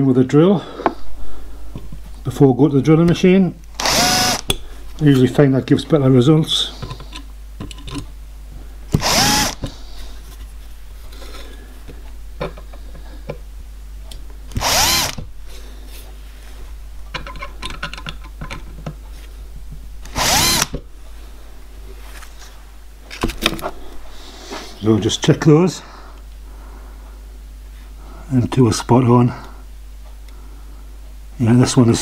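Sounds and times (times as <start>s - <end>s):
power drill whining: 3.8s - 4.6s, 8.9s - 9.7s, 14.5s - 15.2s, 20.0s - 20.8s.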